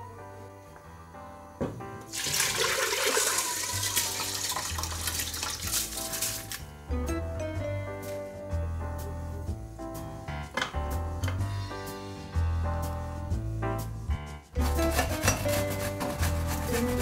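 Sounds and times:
background music: 0.0 - 17.0
rice and water pouring into pot: 2.1 - 6.6.

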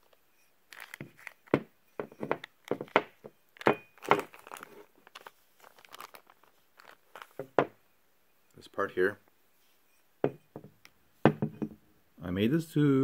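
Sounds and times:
plastic bags crinkling: 0.7 - 1.6, 3.6 - 7.6.

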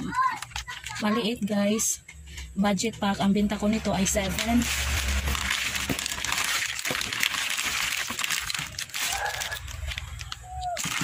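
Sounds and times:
plastic packets crinkling: 3.5 - 11.0.

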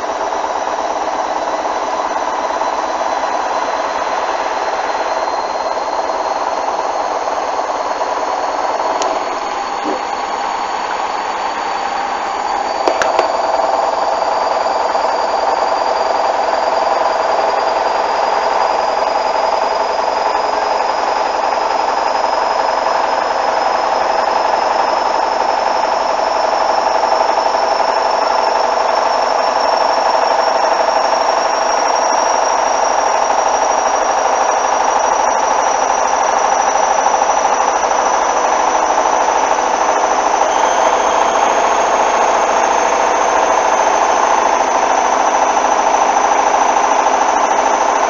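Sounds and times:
washing machine spinning: 0.0 - 48.0
quick knocks: 12.9 - 13.4.

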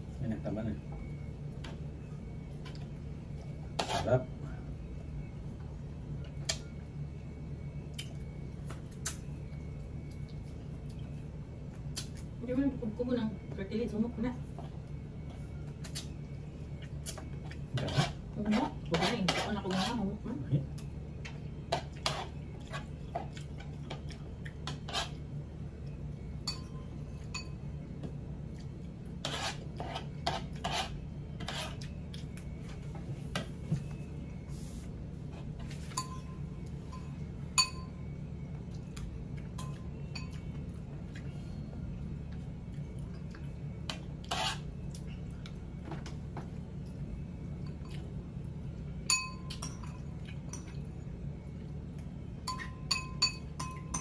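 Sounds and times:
steady low hum: 0.0 - 54.0
spoon clinking against bowl: 26.4 - 27.6, 35.9 - 38.0, 39.6 - 40.5, 49.0 - 50.8, 52.4 - 54.0.

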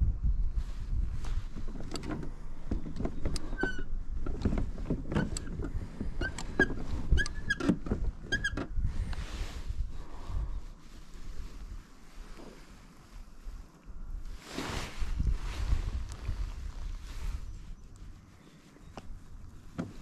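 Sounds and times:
plastic kayak knocks and squeaks: 1.6 - 8.8.

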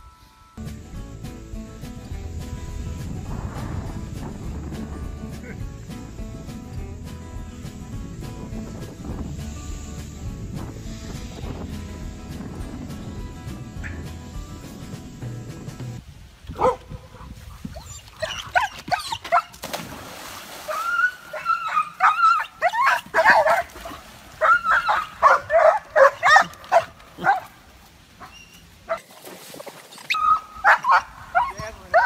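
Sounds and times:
dog barking and whining: 16.6 - 19.6, 20.7 - 23.7, 24.4 - 27.5, 30.1 - 32.0.

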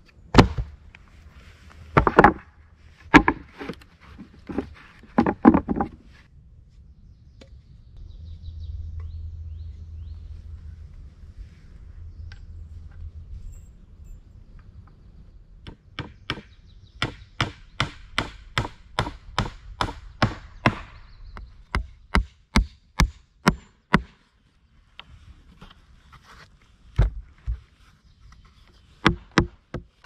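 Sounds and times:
hammer nailing wooden planks: 15.7 - 21.0, 21.7 - 24.2, 29.0 - 30.0.

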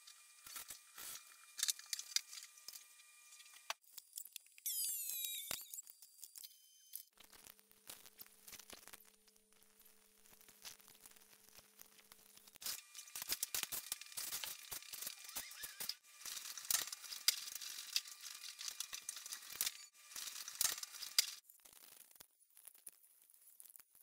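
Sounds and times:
paint roller crackling: 12.6 - 21.4.

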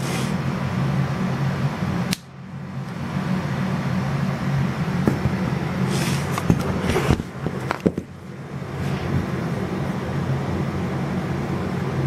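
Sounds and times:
rubbing handling noise: 5.1 - 9.3.

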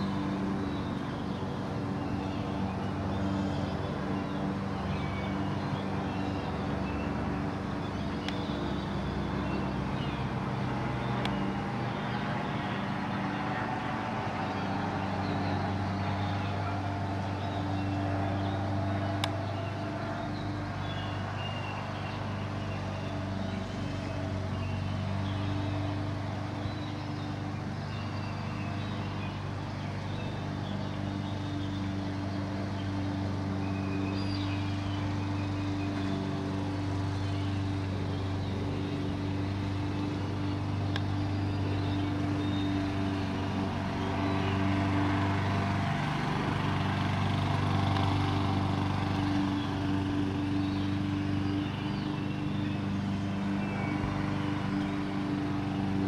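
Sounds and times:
low mechanical hum: 0.0 - 56.0
faint clicks: 11.2 - 11.4.

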